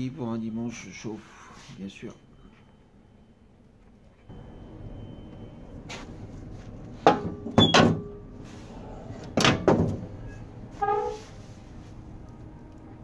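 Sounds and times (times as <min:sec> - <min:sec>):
metal oven door clanking: 0:07.0 - 0:08.2, 0:09.2 - 0:10.3.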